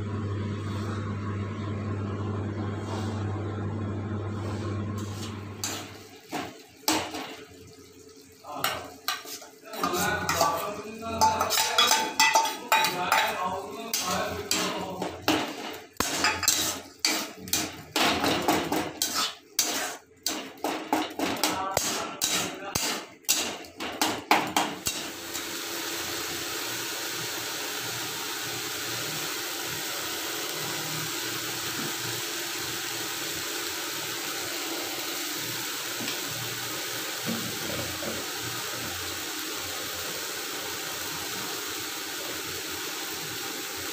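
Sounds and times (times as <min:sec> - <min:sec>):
spatula scraping steel bowl: 0:15.5 - 0:17.8, 0:18.8 - 0:20.7, 0:21.8 - 0:23.5.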